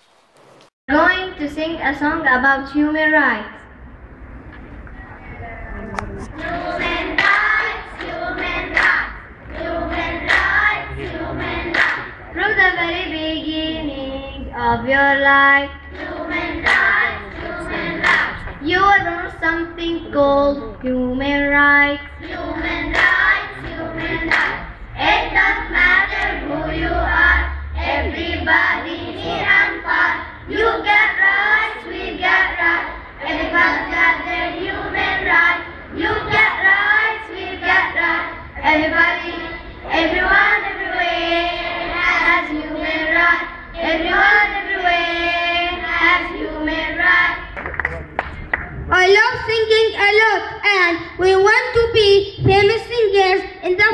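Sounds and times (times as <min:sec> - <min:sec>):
girls singing into a microphone: 0:06.2 - 0:47.6.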